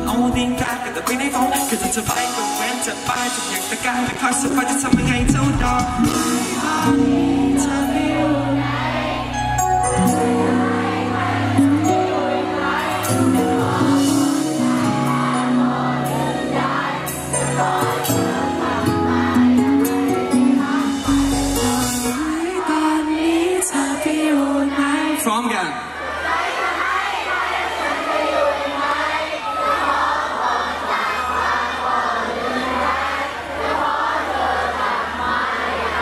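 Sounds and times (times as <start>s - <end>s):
person singing into microphone: 0.0s - 9.4s, 10.0s - 25.3s
bass line: 4.2s - 22.6s.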